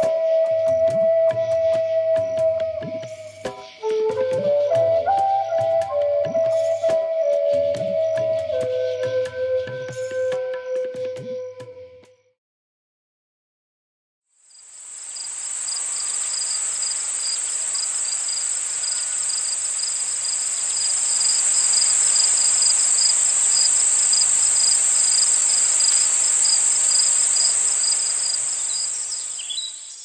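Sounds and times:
insects shrill hum: 0:00.0 - 0:05.7, 0:14.5 - 0:30.0
fast pulsing insect trill: 0:14.5 - 0:30.0.

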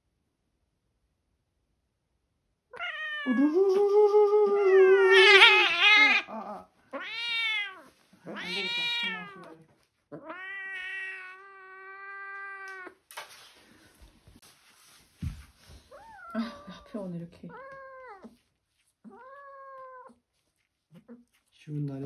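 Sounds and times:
cat yowling and meowing: 0:02.8 - 0:03.8, 0:04.4 - 0:13.0, 0:15.9 - 0:16.8, 0:17.5 - 0:18.4, 0:19.0 - 0:20.2.

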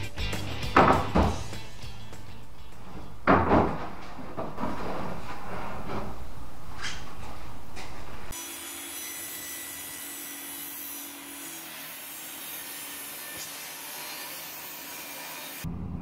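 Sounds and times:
table saw cutting wood: 0:08.3 - 0:15.7.

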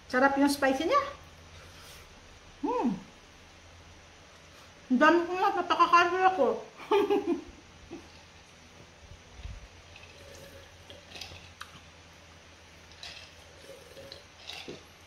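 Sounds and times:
sipping and swallowing water: 0:09.3 - 0:11.9, 0:12.8 - 0:15.0.

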